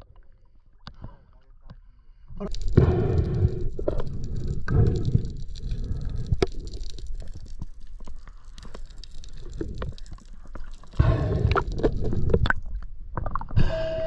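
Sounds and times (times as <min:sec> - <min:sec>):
low underwater rumble: 0:02.1 - 0:14.0
sharp clicks and crackling: 0:02.4 - 0:13.6.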